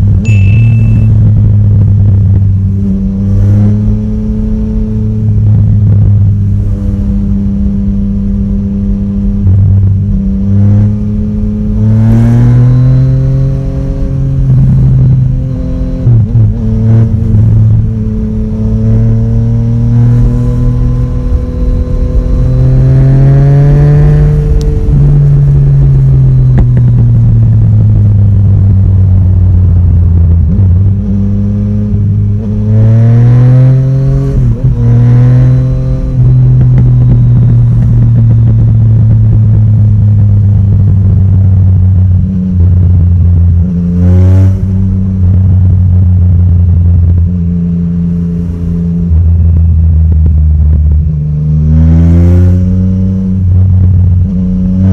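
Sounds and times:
wind rumble on microphone: 0.0 - 48.0, 48.6 - 54.9
motorcycle engine revving: 0.0 - 54.9.

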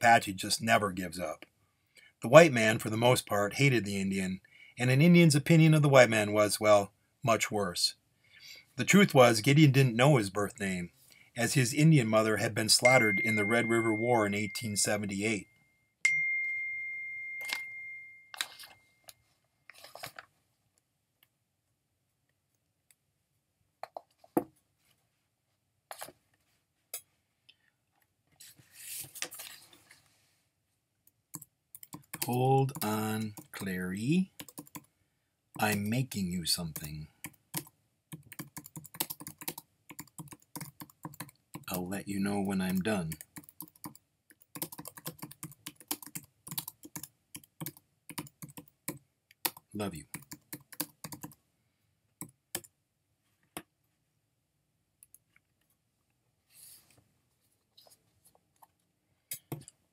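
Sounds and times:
soft rustle: 18.4 - 20.7, 28.3 - 30.5, 56.4 - 58.8
computer keyboard typing: 31.3 - 33.7, 34.4 - 34.9, 36.7 - 41.8, 42.5 - 51.4, 52.2 - 52.7.

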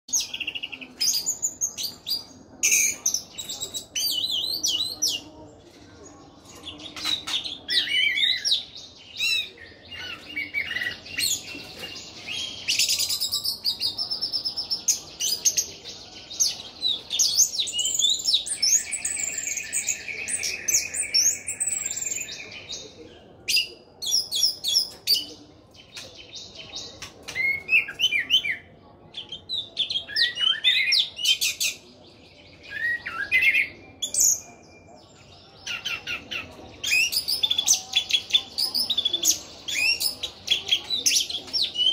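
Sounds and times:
bird singing whistled song: 16.8 - 22.8, 32.5 - 34.9.

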